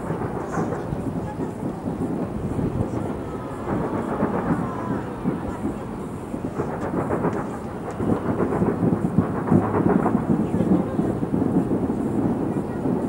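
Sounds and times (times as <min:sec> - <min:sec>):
distant fireworks rumble: 0:00.0 - 0:13.0.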